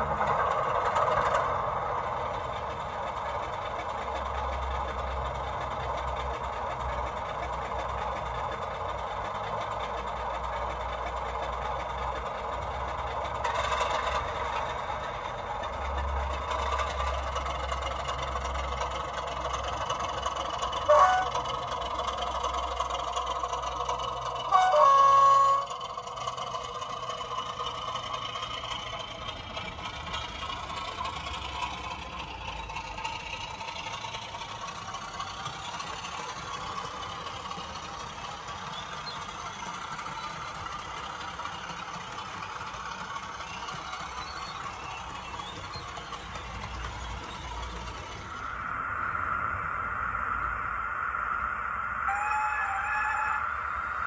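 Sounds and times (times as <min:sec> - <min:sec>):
diesel engine idling: 0:00.0 - 0:54.0
train horn: 0:20.8 - 0:21.5, 0:24.5 - 0:25.8, 0:52.1 - 0:53.5.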